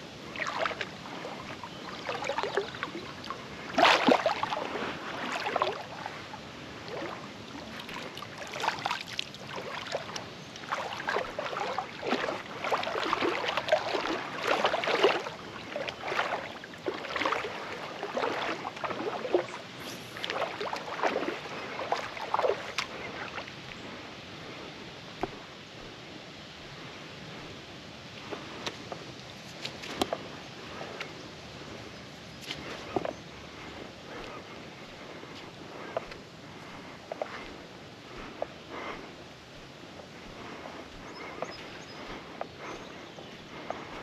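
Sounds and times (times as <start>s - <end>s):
river rushing: 0.0s - 23.4s
water splashing from wading: 0.2s - 23.8s.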